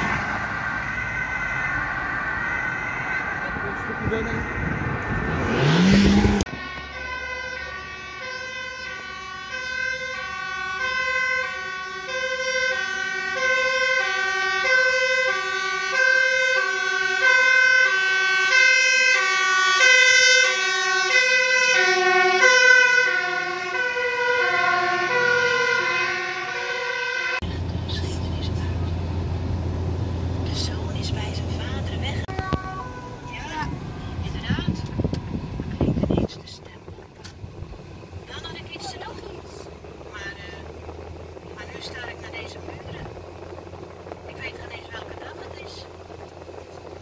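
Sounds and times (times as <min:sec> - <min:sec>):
fire engine two-tone siren: 0:00.0 - 0:27.5, 0:31.2 - 0:36.3, 0:45.0 - 0:47.0.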